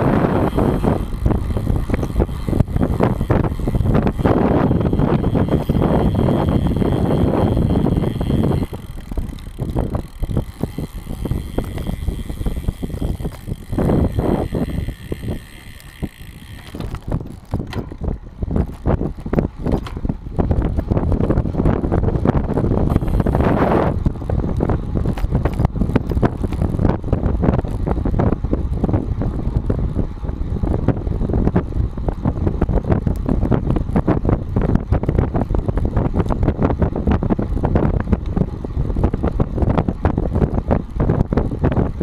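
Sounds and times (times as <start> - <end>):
tyre noise: 0.0 - 29.8
wind noise on microphone: 0.0 - 42.0
bicycle mount rattling and knocking: 0.4 - 28.0.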